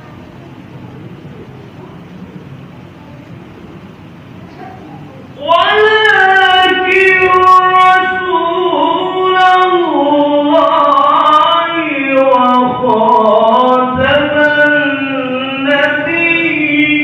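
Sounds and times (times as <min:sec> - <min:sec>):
person chanting recitation: 0:05.3 - 0:17.0.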